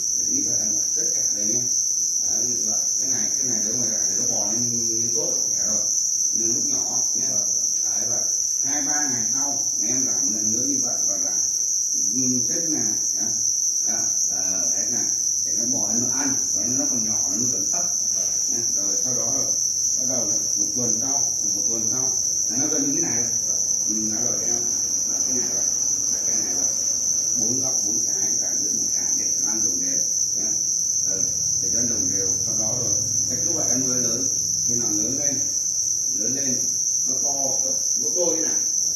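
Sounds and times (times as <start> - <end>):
crickets chirping: 0.0 - 38.9
indistinct talking: 12.0 - 35.5.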